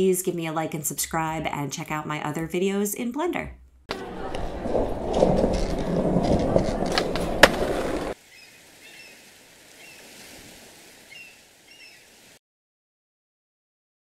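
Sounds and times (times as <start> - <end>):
skateboard wheels rolling on hard floor: 3.9 - 8.2.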